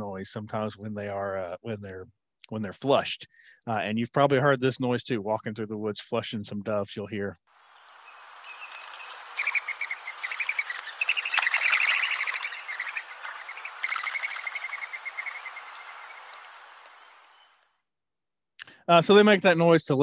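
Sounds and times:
dove wings whistling: 8.0s - 17.5s.

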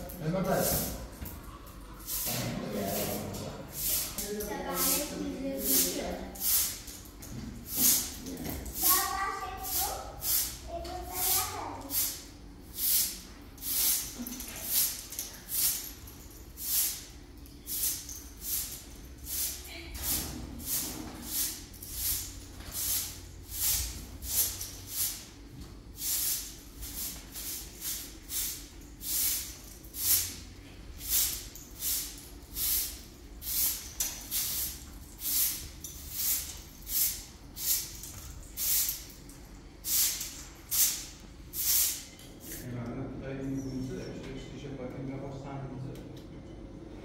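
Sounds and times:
short high hissing strokes: 7.7s - 16.0s, 16.6s - 39.2s, 39.8s - 42.6s.

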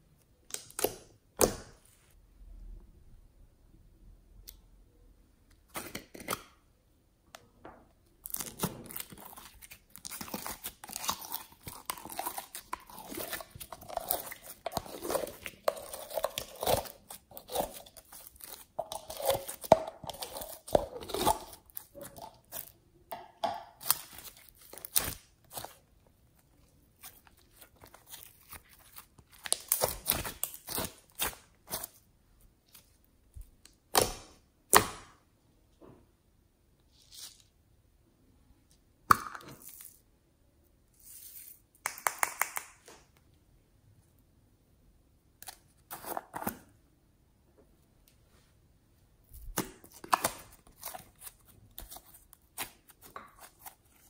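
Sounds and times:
slime crackling and squelching: 8.2s - 22.8s, 23.7s - 34.2s.

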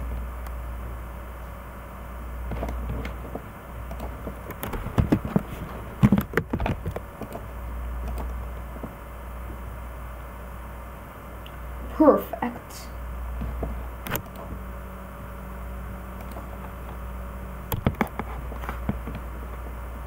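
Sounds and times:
low steady hum: 0.0s - 20.0s
computer keyboard keystrokes: 3.9s - 5.4s, 6.0s - 8.4s, 16.2s - 16.5s.

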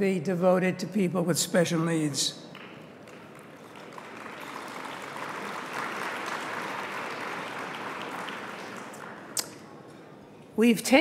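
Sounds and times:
audience applauding: 2.5s - 9.6s.

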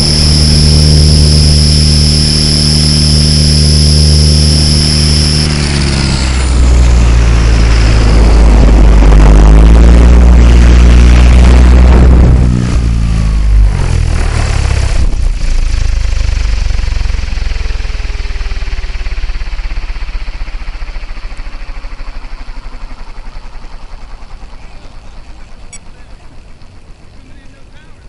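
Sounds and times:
helicopter rotor blade whir: 0.0s - 28.0s.

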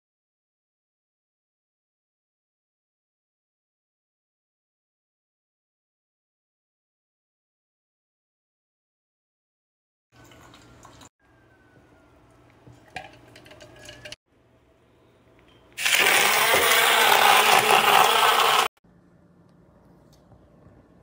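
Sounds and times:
blender churning liquid: 15.8s - 18.8s.

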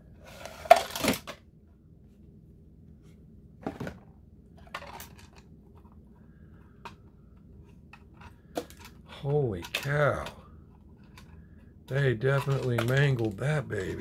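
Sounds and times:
low steady hum: 0.0s - 14.0s
plastic pieces clicking and rustling: 7.9s - 14.0s.

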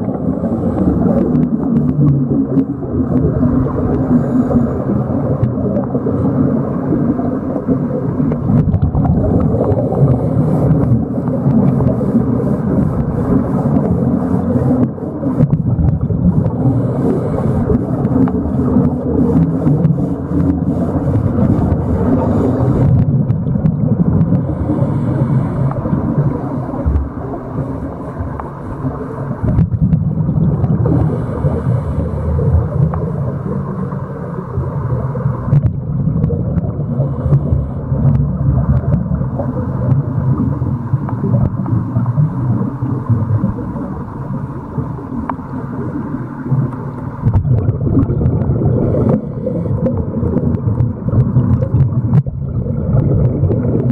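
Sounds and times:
low underwater rumble: 0.0s - 53.9s
faint clicks: 32.8s - 33.1s, 45.0s - 45.5s.

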